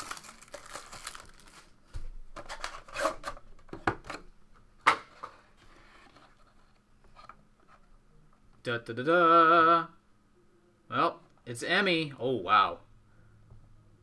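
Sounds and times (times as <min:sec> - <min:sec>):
plastic wrap tearing and crinkling: 0:00.0 - 0:01.8.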